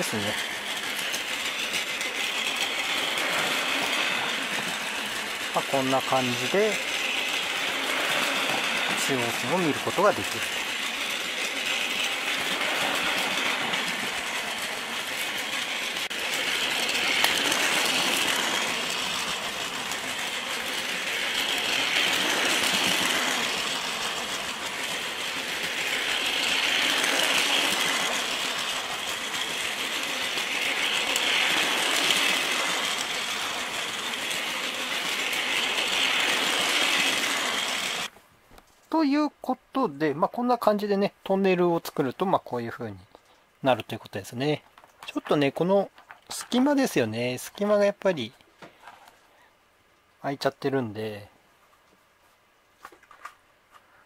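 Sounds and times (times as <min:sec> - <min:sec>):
toy train motor whirring: 0:00.0 - 0:38.1
wheels clattering over rail joints: 0:00.0 - 0:38.2.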